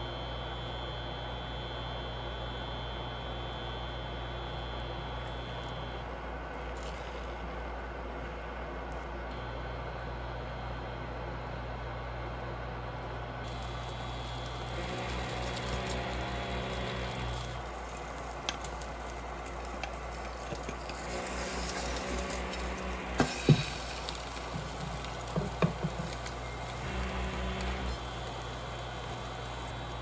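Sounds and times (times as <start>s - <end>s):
bread sizzling in a pan: 13.5s - 30.0s
wooden spatula knocking a pan: 25.4s - 26.1s.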